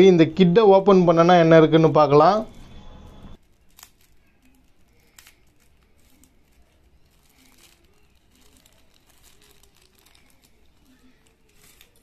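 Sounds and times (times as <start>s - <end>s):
packet crinkling and rustling: 3.4s - 12.0s.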